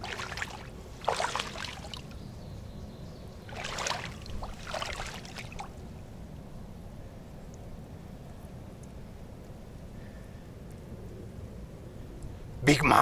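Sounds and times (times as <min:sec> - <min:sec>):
water splashing and sloshing: 0:00.0 - 0:02.4, 0:03.3 - 0:06.5.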